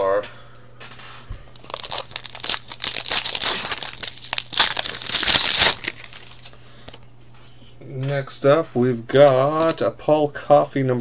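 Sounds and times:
foil wrapper crinkling: 1.5s - 7.0s, 9.1s - 9.8s.

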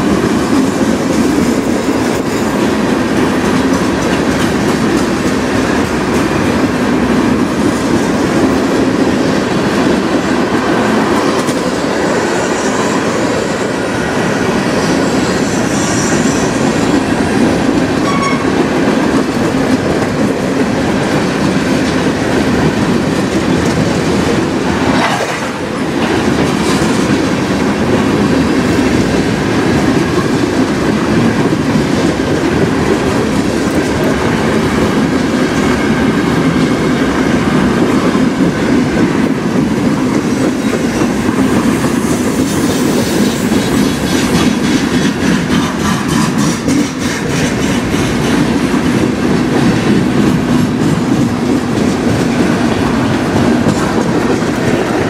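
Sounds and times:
train wheels rolling on rails: 0.0s - 55.0s
wheels clicking over rail joints: 37.6s - 55.0s.

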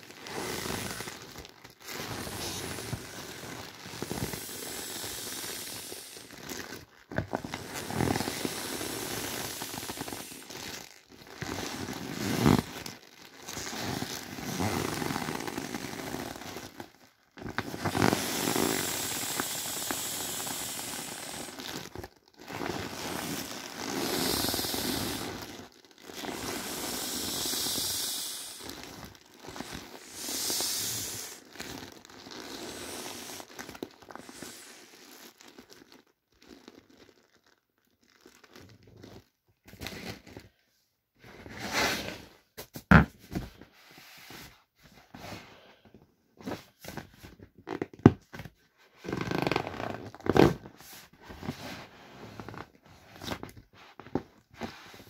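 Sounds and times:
air hissing out of vinyl toys: 4.0s - 6.3s, 7.6s - 10.6s, 17.8s - 21.6s, 22.9s - 25.5s, 26.2s - 28.9s, 29.5s - 31.5s, 32.5s - 33.6s, 34.2s - 35.0s
vinyl crinkling and rubbing: 45.9s - 55.0s.

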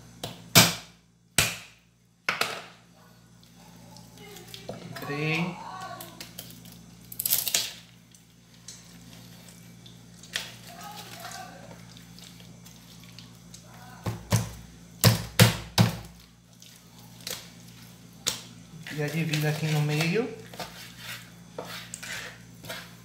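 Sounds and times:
knife scraping cut: 20.5s - 23.0s.

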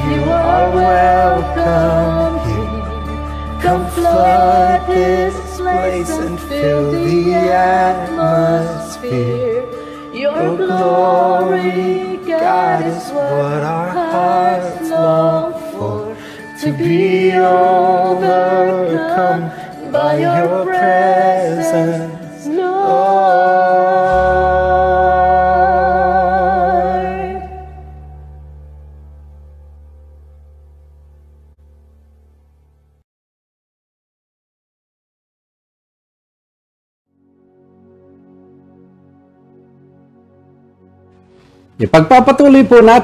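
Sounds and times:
man and woman singing: 0.0s - 27.6s
soft instrumental accompaniment: 0.0s - 32.2s.

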